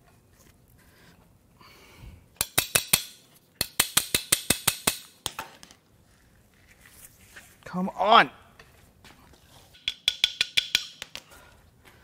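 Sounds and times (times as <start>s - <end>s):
metallic tool taps: 9.8s - 11.2s.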